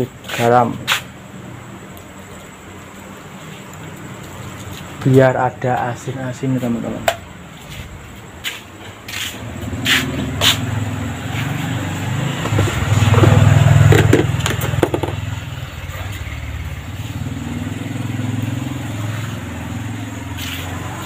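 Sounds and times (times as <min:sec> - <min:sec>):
motorcycle engine running: 0:09.4 - 0:21.0.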